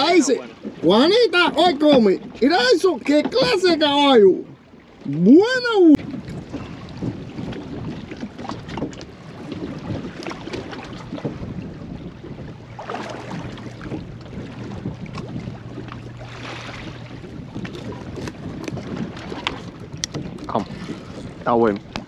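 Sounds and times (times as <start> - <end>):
knocks and clicks from boat: 0.0 - 22.0
water against boat hull: 0.0 - 22.0
wind on microphone: 4.8 - 22.0.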